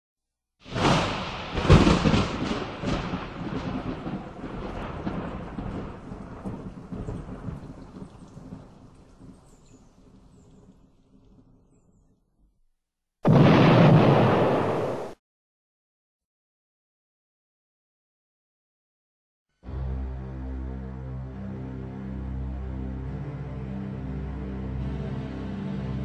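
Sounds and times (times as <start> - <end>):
thunder crack and rumble: 0.6 - 11.8, 13.2 - 15.2.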